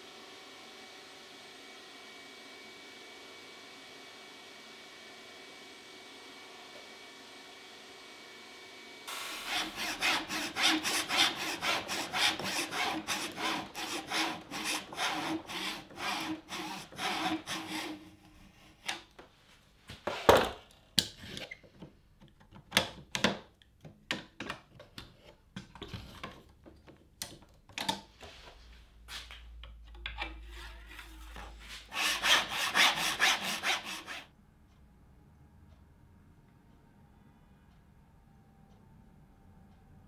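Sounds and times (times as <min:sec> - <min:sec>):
saw cutting wood: 0:09.1 - 0:19.0, 0:30.4 - 0:34.3.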